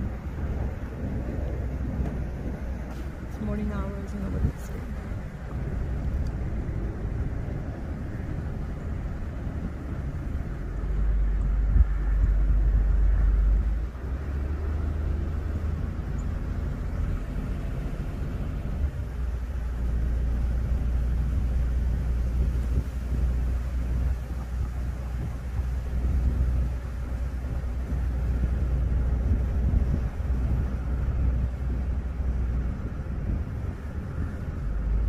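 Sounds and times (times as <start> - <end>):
car tyre and engine rumble: 0.0 - 35.0.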